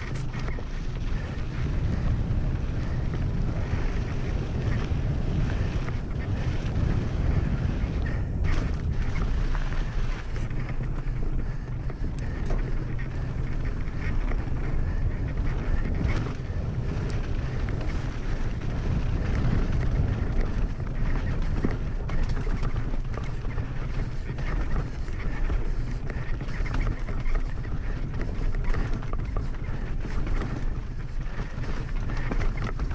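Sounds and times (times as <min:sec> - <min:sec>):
bike tyres on gravel trail: 0:00.0 - 0:32.9
sharp clicks and rattles: 0:00.0 - 0:32.9
wind on microphone: 0:00.0 - 0:32.9.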